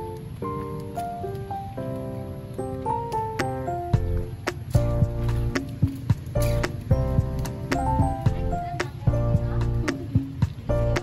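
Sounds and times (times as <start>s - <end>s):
held chords: 0.0s - 11.0s
regular drum beat: 3.4s - 11.0s.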